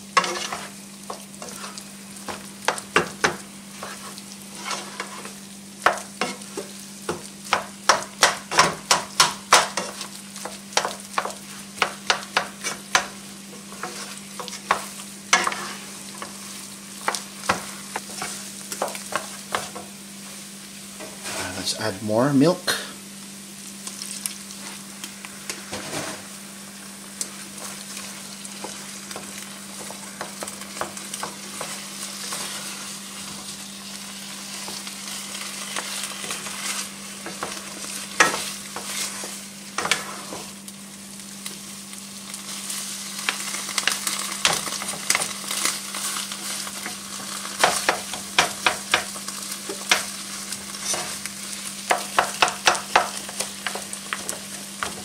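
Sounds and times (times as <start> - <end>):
wooden spatulas scraping a pot: 0.2 - 0.8, 1.4 - 1.8, 3.8 - 5.4, 15.4 - 16.4.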